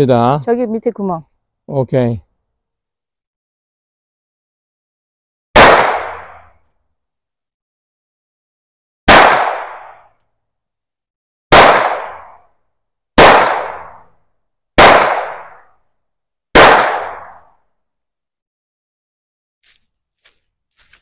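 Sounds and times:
pistol shots with echo: 0:05.6 - 0:06.4, 0:09.1 - 0:10.0, 0:11.5 - 0:12.4, 0:13.2 - 0:14.0, 0:14.8 - 0:15.6, 0:16.5 - 0:17.5.

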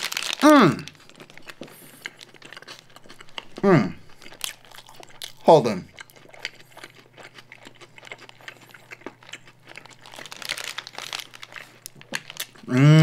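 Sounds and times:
paper wrapper crinkling: 0:00.0 - 0:01.6, 0:09.8 - 0:12.7
chewing: 0:00.0 - 0:12.8
man talking: 0:00.4 - 0:00.9, 0:03.6 - 0:04.0, 0:05.4 - 0:05.9.

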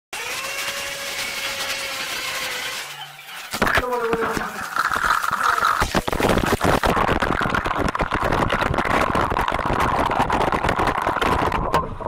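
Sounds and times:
electric drill motor running: 0:00.2 - 0:03.0.

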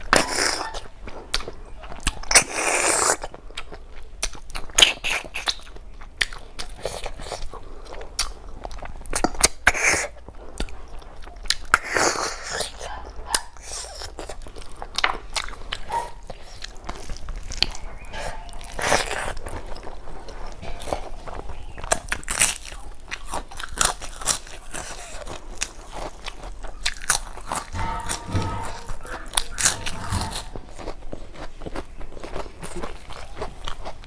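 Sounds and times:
chewing curry by hand: 0:00.0 - 0:34.0
rice cracker crunching: 0:15.5 - 0:27.8.

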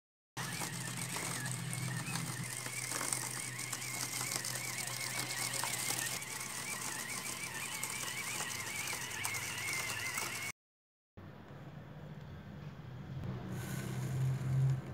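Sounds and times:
robot rattling on tiled floor: 0:00.4 - 0:10.5
electric gear motors whining: 0:00.4 - 0:10.6.

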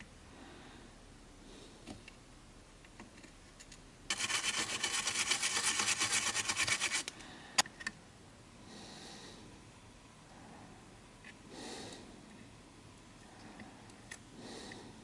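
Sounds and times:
toothbrush scrubbing circuit board: 0:04.1 - 0:07.1.

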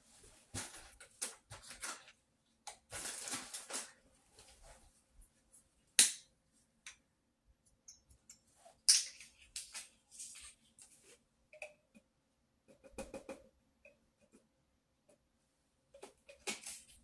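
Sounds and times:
painting supplies clicking and rustling: 0:15.9 - 0:17.0.

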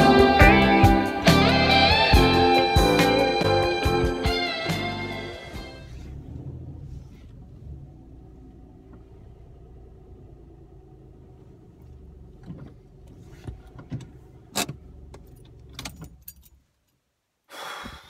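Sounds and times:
low hum inside car: 0:05.2 - 0:16.7.

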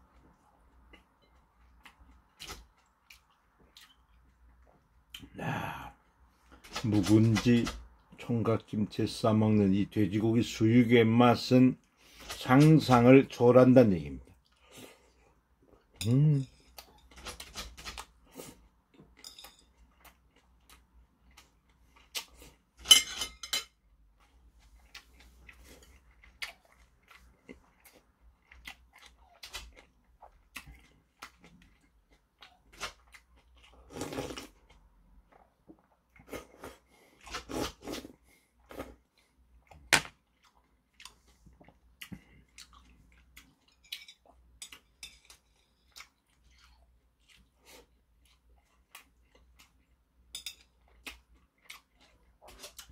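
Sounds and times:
chewing crunchy food: 0:24.1 - 0:52.9.

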